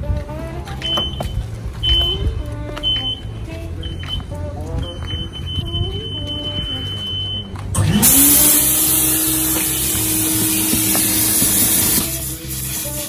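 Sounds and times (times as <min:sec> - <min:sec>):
vacuum motor whining: 0:07.8 - 0:12.1.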